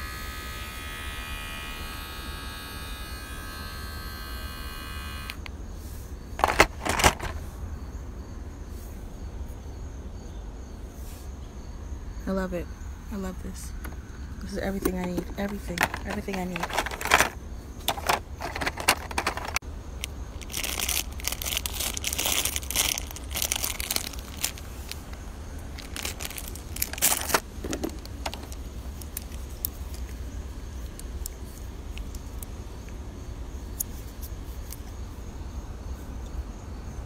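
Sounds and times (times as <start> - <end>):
plastic wrap crinkling: 15.4 - 29.6.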